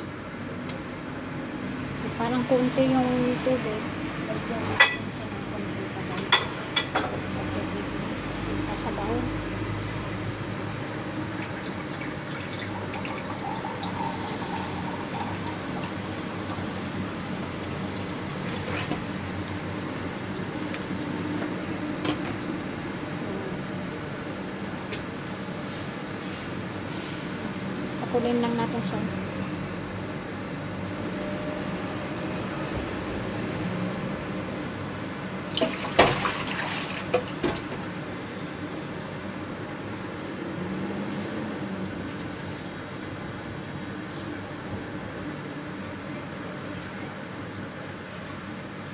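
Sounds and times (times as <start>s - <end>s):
stove hum: 0.0s - 23.0s
broth bubbling in a wok: 9.6s - 21.8s.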